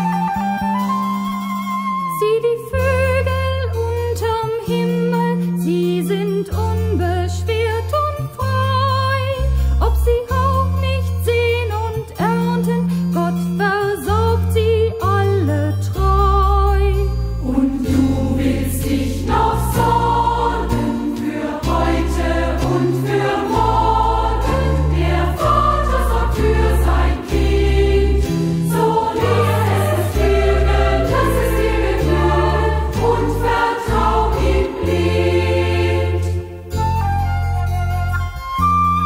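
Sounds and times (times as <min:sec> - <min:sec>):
youth choir singing: 0:17.4 - 0:36.7.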